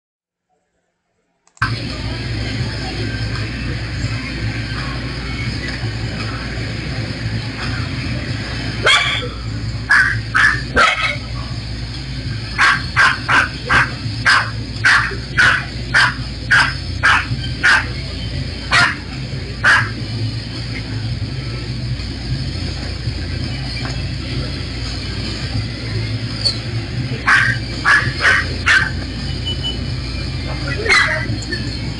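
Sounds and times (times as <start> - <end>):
dog barking: 8.8 - 9.3, 9.9 - 11.2, 12.6 - 17.9, 18.7 - 19.0, 19.6 - 20.0, 27.2 - 29.0, 30.8 - 31.3.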